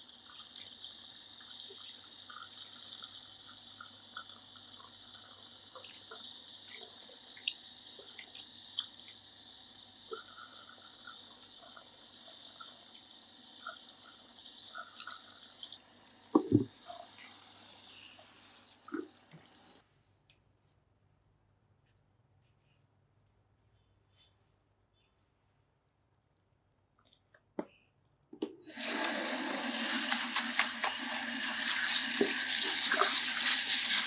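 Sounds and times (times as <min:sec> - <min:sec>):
shower sprayer running water: 0:00.0 - 0:19.8, 0:28.7 - 0:34.0.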